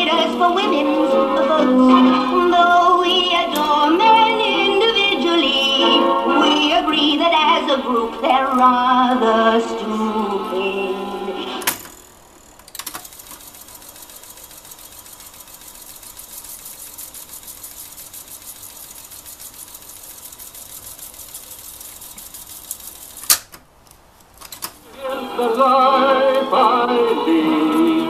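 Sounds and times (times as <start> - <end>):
tape recorder whirring: 0.0 - 28.0
sharp mechanical clunk: 11.6 - 13.1, 23.2 - 23.7.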